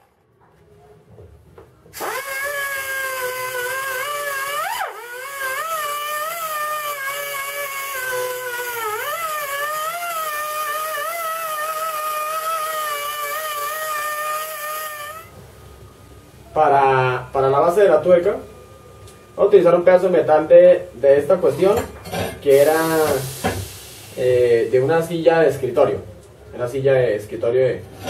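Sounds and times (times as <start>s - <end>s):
die grinder wire-brushing metal: 2.0s - 15.3s.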